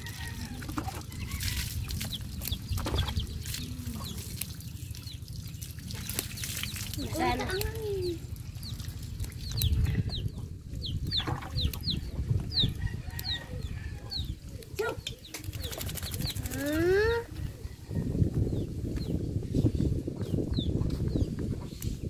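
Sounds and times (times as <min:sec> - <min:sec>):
water splashes and knocks: 0:00.0 - 0:09.6, 0:11.2 - 0:11.8
birds chirping: 0:00.0 - 0:22.0.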